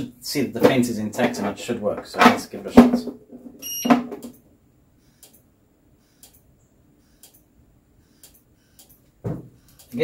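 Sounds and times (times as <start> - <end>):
short electronic beep: 3.6 - 4.0
electric fence sharp ticking: 5.1 - 10.0.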